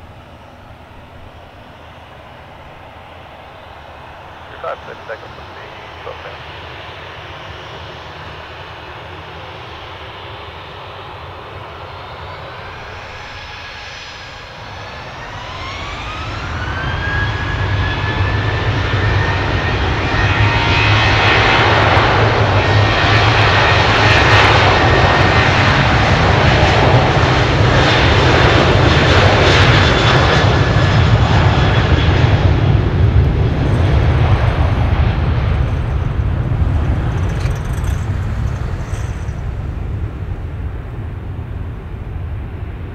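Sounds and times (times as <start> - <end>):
jet engine roar: 0.0 - 42.9
jet engines spooling up: 30.5 - 42.5.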